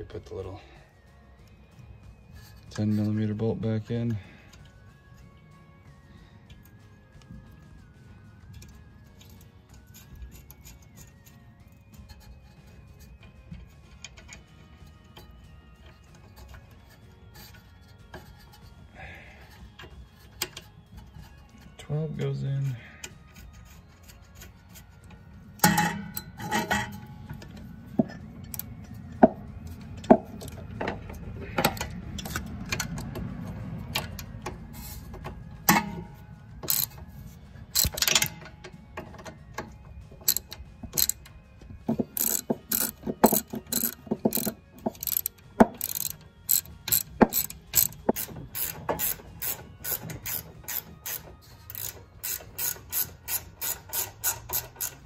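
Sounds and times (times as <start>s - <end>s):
ratchet wrench clicking: 36.6s - 37.0s, 37.7s - 38.5s, 40.2s - 41.3s, 42.0s - 55.0s.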